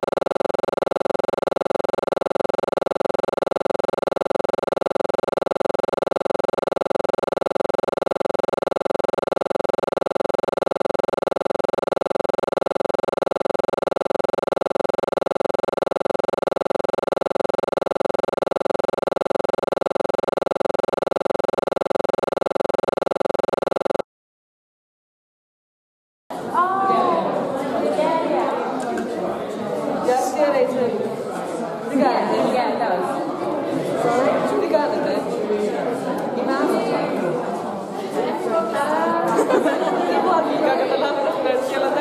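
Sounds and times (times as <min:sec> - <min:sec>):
pulsing buzzing drone: 0:00.0 - 0:24.0.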